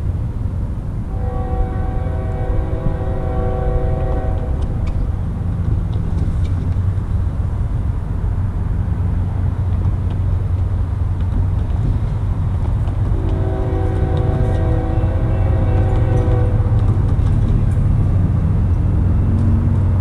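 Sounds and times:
train rumbling: 0:00.0 - 0:20.0
locomotive air horn chord: 0:01.1 - 0:04.7, 0:13.1 - 0:16.8.

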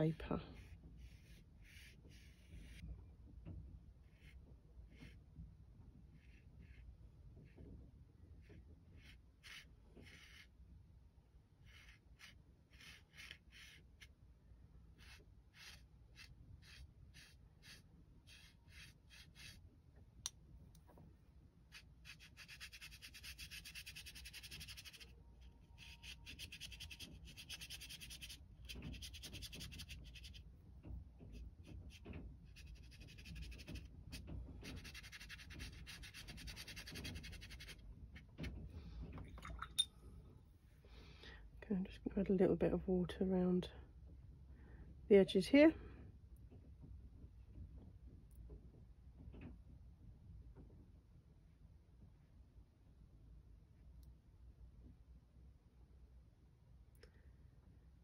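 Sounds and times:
paintbrush scratching on paper: 0:00.0 - 0:03.0, 0:04.0 - 0:10.6, 0:11.5 - 0:14.2, 0:14.9 - 0:19.6, 0:21.6 - 0:38.5.

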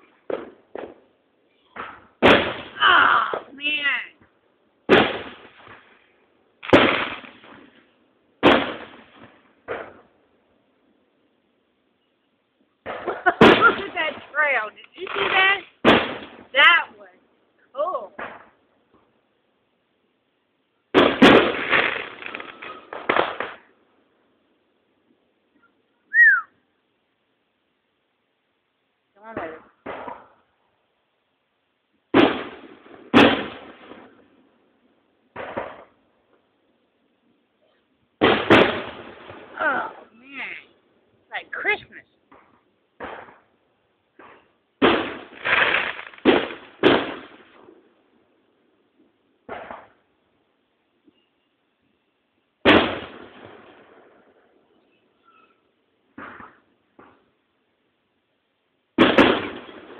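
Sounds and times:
firework bang and crackle: 0:00.0 - 0:03.6, 0:04.2 - 0:10.2, 0:12.8 - 0:16.9, 0:18.0 - 0:19.1, 0:20.9 - 0:23.8, 0:29.3 - 0:30.6, 0:32.1 - 0:34.6, 0:35.3 - 0:36.4, 0:38.2 - 0:40.1, 0:41.6 - 0:48.3, 0:48.9 - 0:50.1, 0:52.6 - 0:55.3, 0:56.1 - 0:57.4, 0:58.9 - 0:59.9.

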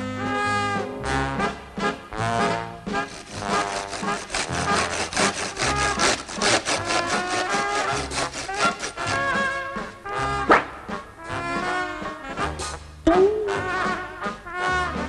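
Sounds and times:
music: 0:00.0 - 0:15.0
hand saw cutting wood: 0:02.9 - 0:09.8.

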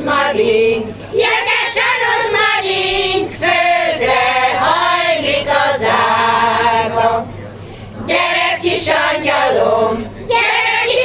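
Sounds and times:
women's choir singing folk song: 0:00.0 - 0:07.4, 0:08.0 - 0:11.0.

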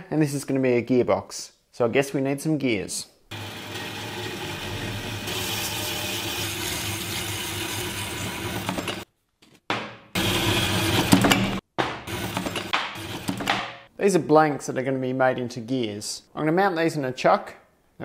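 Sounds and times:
bandsaw cutting steel bar: 0:03.3 - 0:09.0, 0:10.2 - 0:13.6.

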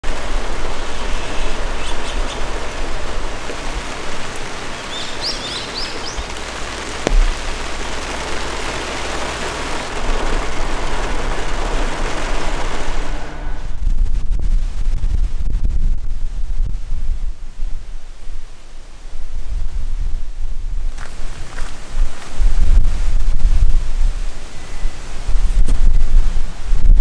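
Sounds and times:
steady rain: 0:00.0 - 0:15.7, 0:16.3 - 0:27.0
bird chirping: 0:01.0 - 0:02.6, 0:04.2 - 0:07.5
sharp tap: 0:07.0 - 0:07.5.

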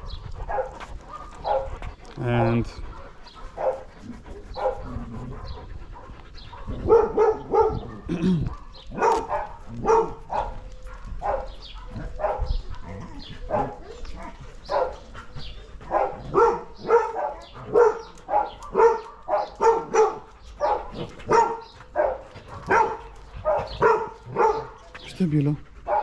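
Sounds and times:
dog barking: 0:00.0 - 0:01.7, 0:02.9 - 0:03.9, 0:06.5 - 0:15.0, 0:15.9 - 0:25.0.

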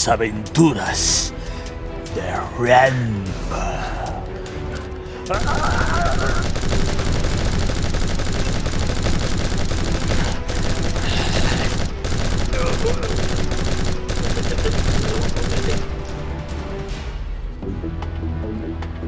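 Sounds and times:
background music: 0:00.0 - 0:19.0
machine-gun fire: 0:05.3 - 0:16.3.

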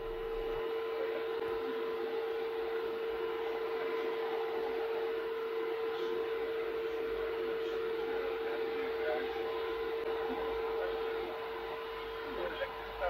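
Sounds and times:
steady tone: 0:00.0 - 0:13.0.

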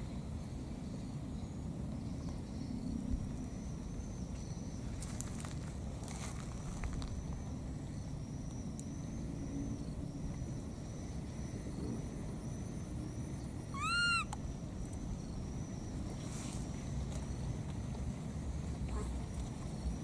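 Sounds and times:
baby monkey call: 0:13.7 - 0:14.4.

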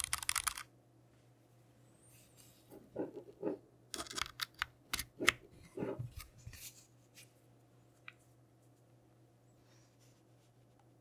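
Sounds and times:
keyboard clicks and taps: 0:00.0 - 0:00.7.

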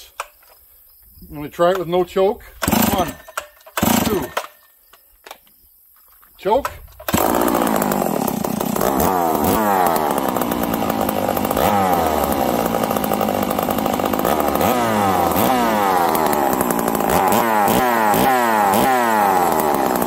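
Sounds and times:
chainsaw revving: 0:02.6 - 0:04.7, 0:07.0 - 0:20.0.

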